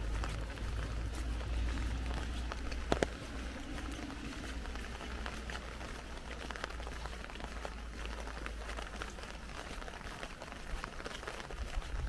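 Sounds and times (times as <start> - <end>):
rain pattering on umbrella: 0.0 - 12.0.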